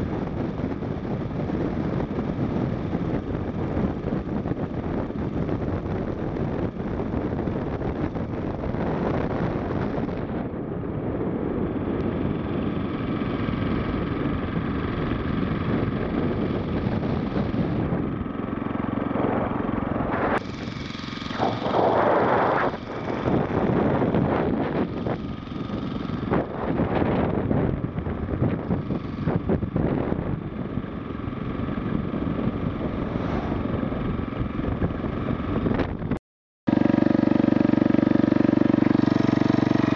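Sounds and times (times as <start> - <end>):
small engine running: 11.2 - 36.1, 36.7 - 39.9.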